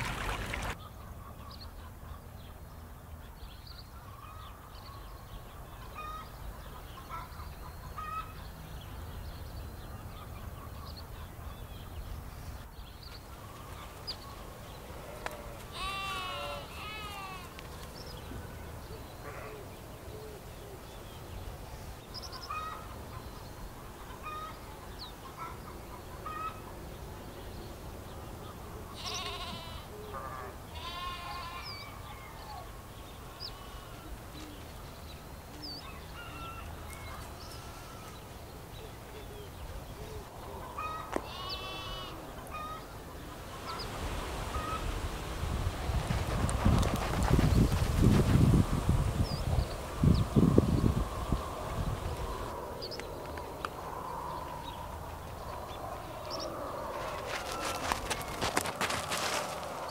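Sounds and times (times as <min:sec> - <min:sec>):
farm animals bleating: 0:15.3 - 0:17.6, 0:28.9 - 0:29.9, 0:30.7 - 0:32.0, 0:33.4 - 0:34.1, 0:37.2 - 0:38.2, 0:41.2 - 0:42.2.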